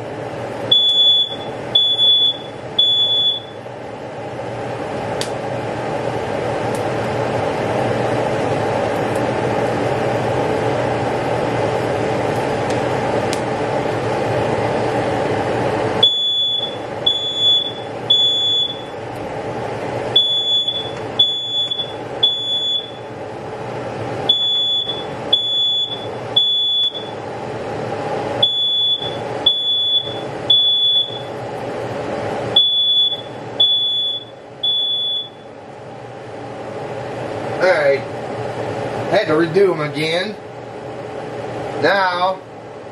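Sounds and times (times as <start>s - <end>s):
smoke alarm beeping: 0.7s - 3.6s, 16.0s - 19.0s, 20.1s - 23.2s, 24.3s - 27.2s, 28.4s - 31.4s, 32.5s - 35.6s.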